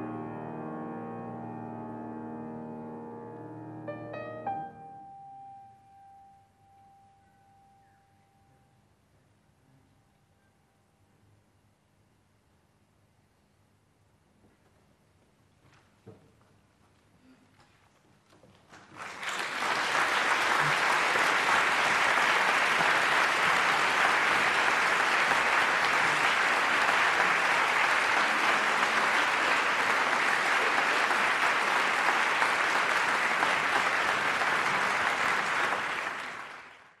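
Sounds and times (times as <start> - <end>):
audience applauding: 18.7 - 37.0.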